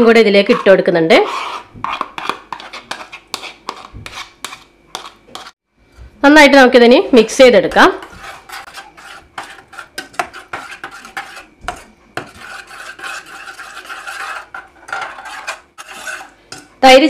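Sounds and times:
spoon scraping metal pot: 0.0s - 5.6s, 7.7s - 16.8s.

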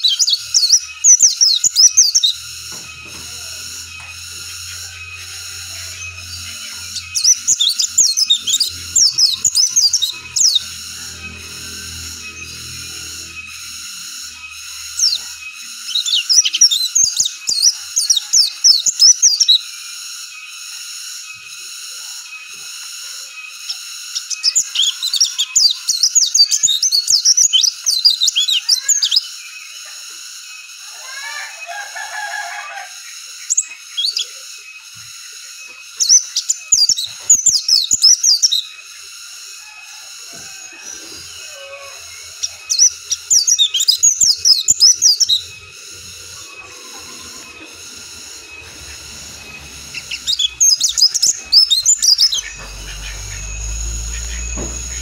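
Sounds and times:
bird twittering chirps: 0.0s - 22.6s, 23.4s - 29.9s, 33.0s - 39.1s, 40.6s - 55.0s
steady high drone: 0.4s - 17.4s, 42.1s - 55.0s.

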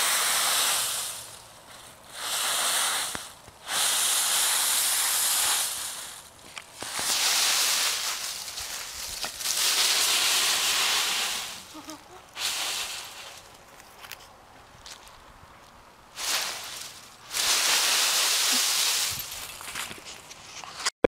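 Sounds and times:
dry leaves rustling and crunching: 5.4s - 15.2s, 16.1s - 20.3s.

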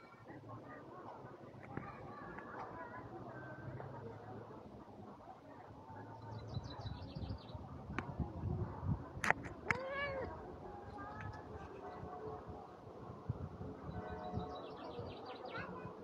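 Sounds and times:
cat meowing: 9.6s - 10.3s.

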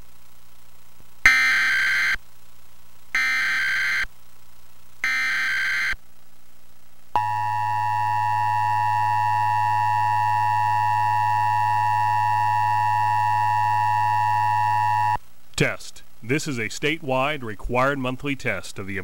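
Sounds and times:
low hum: 5.9s - 15.3s
two-tone attention signal: 7.2s - 15.2s.

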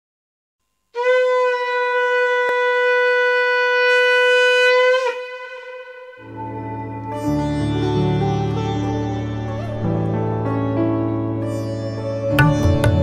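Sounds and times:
conch shell blown: 0.9s - 7.0s
instrumental music with low drone: 4.5s - 13.0s.

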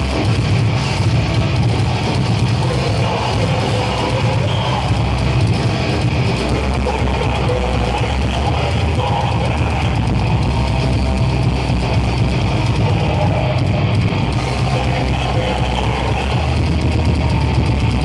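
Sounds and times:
heavy metal band playing live: 0.0s - 18.0s.

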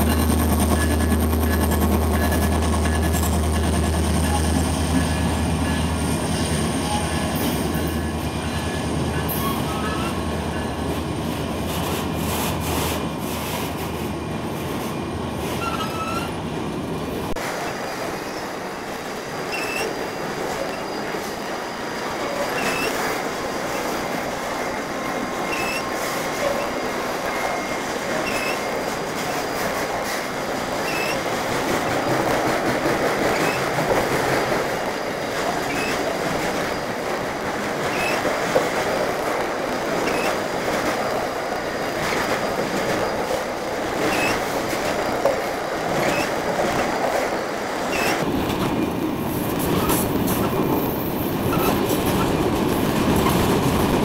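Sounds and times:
steel wheels rumbling on rail: 0.0s - 54.0s
high wheel squeaks: 4.2s - 10.8s, 15.5s - 16.4s, 19.5s - 23.0s, 25.3s - 29.7s, 30.7s - 31.3s, 33.2s - 34.0s, 35.5s - 37.0s, 37.8s - 38.3s, 40.0s - 40.5s, 43.9s - 44.6s, 45.9s - 46.5s, 47.4s - 48.2s, 50.8s - 52.3s.

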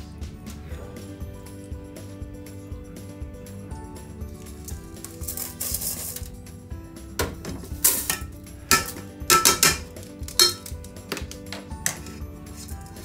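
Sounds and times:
background music: 0.0s - 13.0s
metal strainer knocking against pot: 7.8s - 10.7s.

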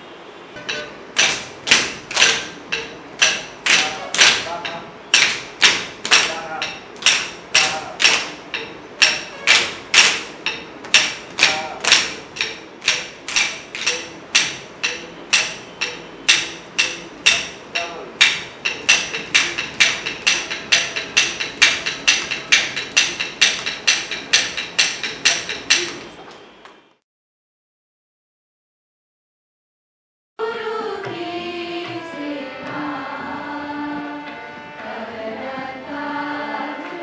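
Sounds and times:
struck beats with ringing tone: 0.6s - 1.4s, 10.4s - 26.2s.

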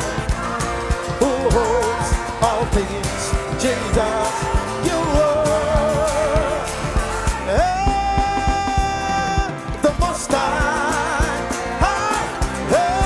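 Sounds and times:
acoustic guitar: 0.0s - 13.0s
band with steady drum beat: 0.0s - 13.0s
man singing into a microphone: 0.0s - 13.0s.

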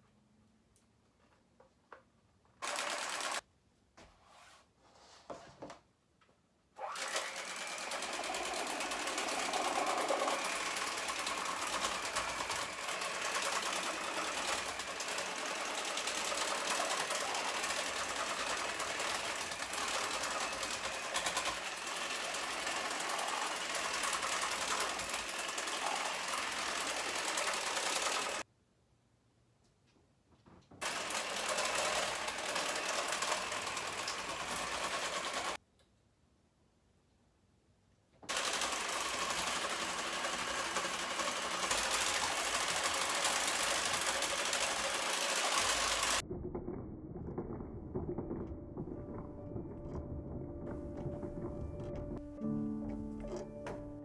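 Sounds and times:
hand mixer motor buzz: 2.6s - 3.4s, 6.8s - 28.4s, 30.8s - 35.6s, 38.3s - 46.2s
pencils rattling and scratching cardboard: 7.4s - 28.4s, 30.8s - 35.6s, 38.3s - 46.2s, 47.9s - 53.7s.

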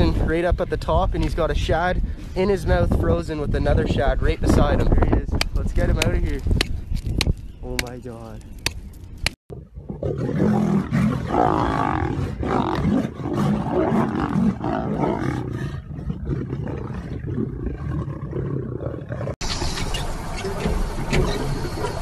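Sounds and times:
lions growling and roaring: 9.5s - 22.0s.

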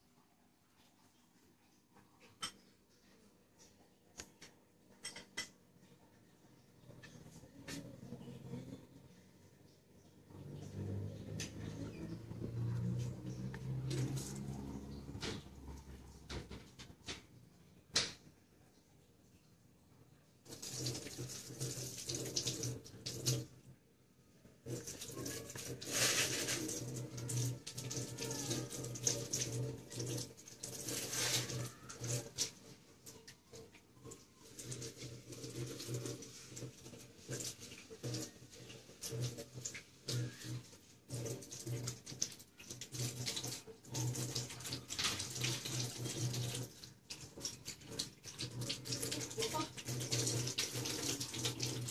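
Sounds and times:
water splashing in plastic basin: 9.6s - 18.4s, 20.4s - 23.7s, 24.6s - 51.9s.

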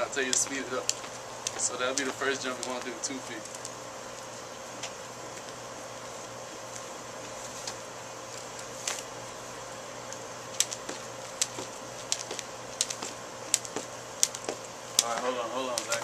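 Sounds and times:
jump rope slapping pavement: 0.0s - 3.6s, 10.5s - 16.0s
background hiss and hum: 0.0s - 16.0s.

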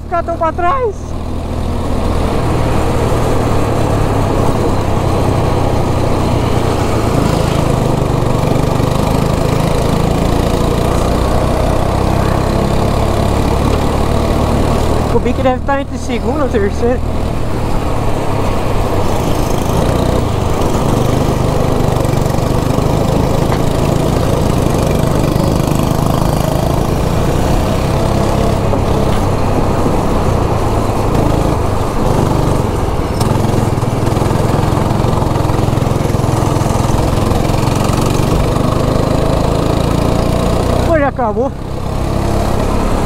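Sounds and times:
go-kart engine running: 0.0s - 43.0s.

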